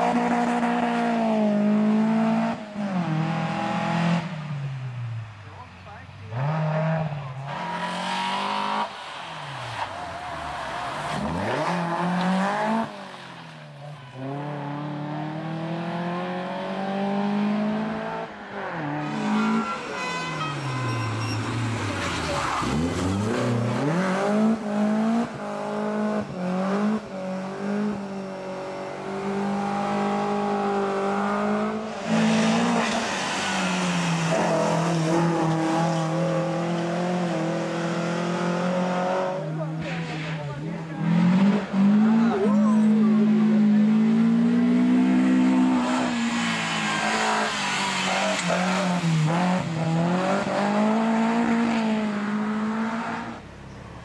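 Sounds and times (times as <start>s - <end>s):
rally car engine revving: 0.0s - 4.6s, 5.6s - 53.5s
tyre squeal: 19.0s - 23.6s.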